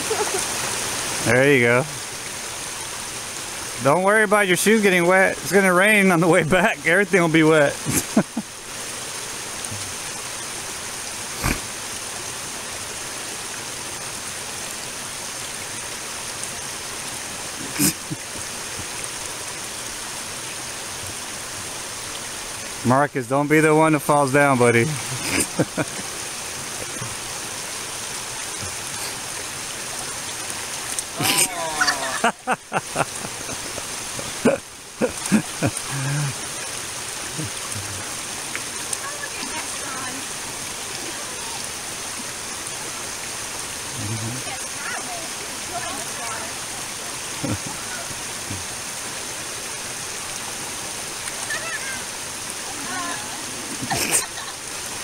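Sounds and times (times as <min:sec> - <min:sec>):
creek water running over rocks: 0:00.0 - 0:55.0
person crying out: 0:31.2 - 0:32.6.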